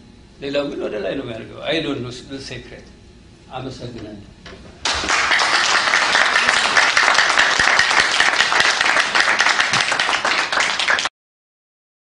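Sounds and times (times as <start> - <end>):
audience applauding: 4.8 - 11.1.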